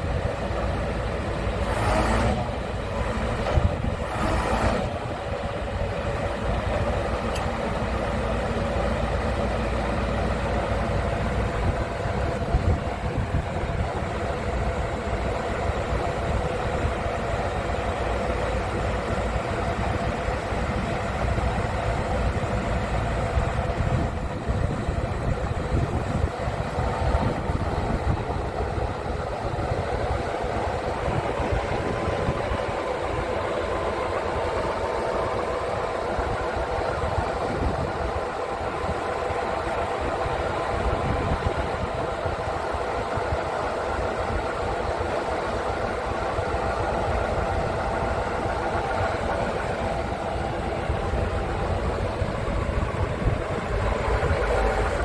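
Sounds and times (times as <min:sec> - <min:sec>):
diesel truck engine running: 0:00.0 - 0:55.0
hydraulic whine: 0:00.0 - 0:55.0.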